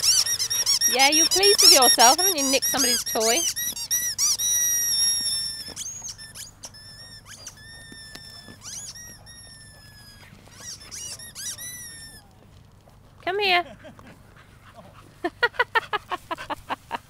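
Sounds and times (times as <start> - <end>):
squeaky toy squeaking: 0.0 - 12.3.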